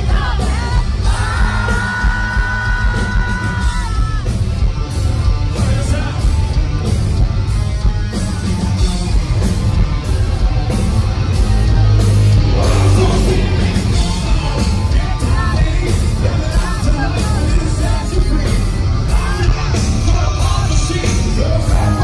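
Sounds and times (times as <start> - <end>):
singer yelling: 0.0 - 4.5, 11.7 - 22.0
live hard rock band: 0.0 - 22.0.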